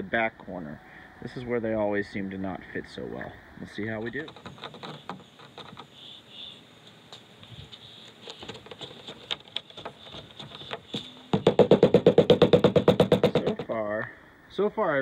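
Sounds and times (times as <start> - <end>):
handling rubber seal: 4.0 - 13.8
rubber mallet tapping rapidly: 9.8 - 13.7.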